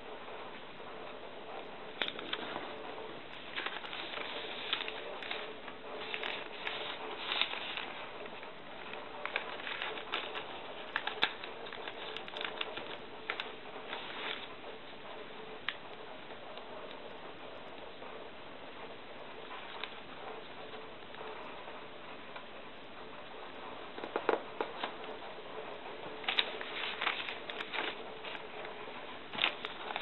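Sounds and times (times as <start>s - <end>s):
paper crinkling and rustling: 2.0s - 17.1s, 24.0s - 25.2s, 25.9s - 30.0s.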